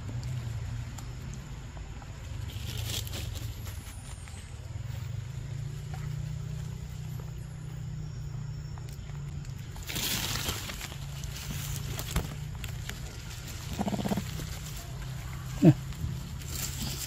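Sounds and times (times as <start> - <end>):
leaves and branch rustling: 2.1 - 5.2, 9.0 - 17.0.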